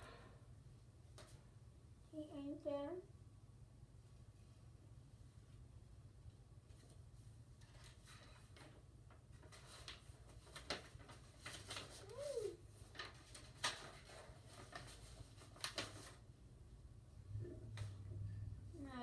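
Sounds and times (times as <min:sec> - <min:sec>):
paper rustling: 0:07.6 - 0:16.3.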